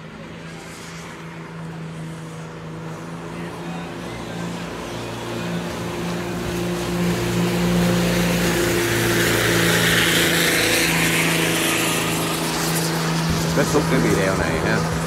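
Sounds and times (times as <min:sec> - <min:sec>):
rush of spray and wake: 0:00.0 - 0:15.0
speedboat engine: 0:00.0 - 0:15.0.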